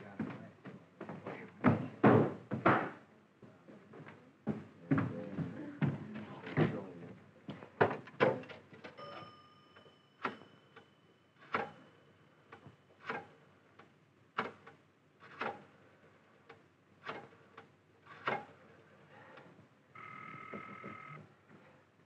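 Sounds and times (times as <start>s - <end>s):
brief ringing tone: 9.0s - 12.3s, 20.0s - 21.2s
sharp clicks or knocks: 12.5s - 15.7s, 17.0s - 18.5s.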